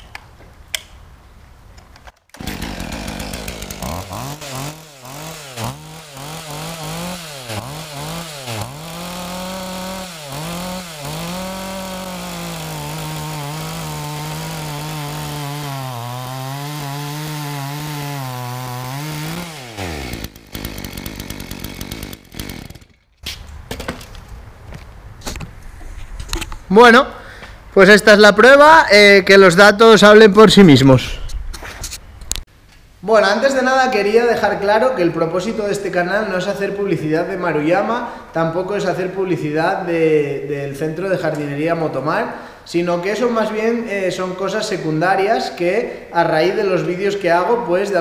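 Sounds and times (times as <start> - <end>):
chainsaw cutting log: 2.3 - 23.3.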